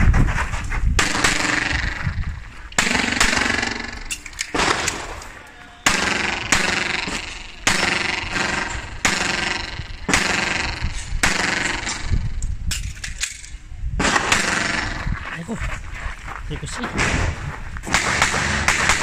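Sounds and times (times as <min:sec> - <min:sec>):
pistol shots echoing off concrete: 0:02.8 - 0:12.0, 0:17.9 - 0:19.0.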